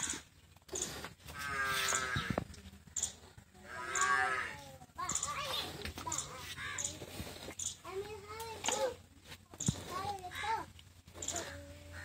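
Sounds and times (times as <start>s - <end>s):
cow mooing: 1.4s - 2.4s, 3.7s - 4.5s.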